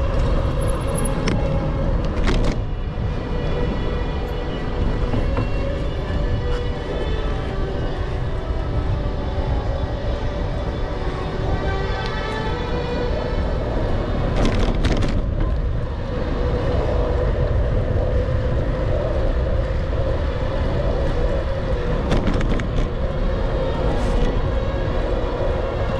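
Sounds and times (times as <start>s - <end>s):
tyres humming on asphalt: 0.0s - 25.9s
wind rushing over microphone: 0.0s - 25.9s.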